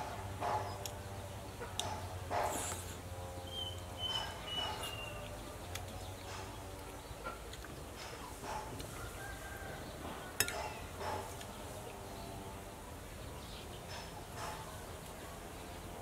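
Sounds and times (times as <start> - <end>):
yard ambience: 0.0 - 16.0
metal spoon clinking on bowl: 10.4 - 10.8.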